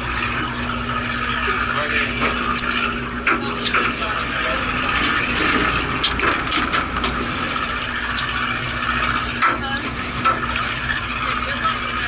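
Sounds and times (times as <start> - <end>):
boat engine humming: 0.0 - 12.0
people talking: 3.3 - 4.9, 9.4 - 10.0, 11.2 - 12.0
wind and water rushing: 4.6 - 9.4.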